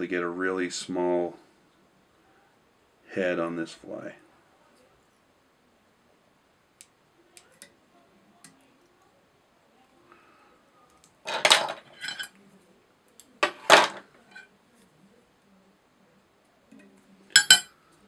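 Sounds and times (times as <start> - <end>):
small metal tools clinking: 11.3 - 12.4, 17.4 - 17.7.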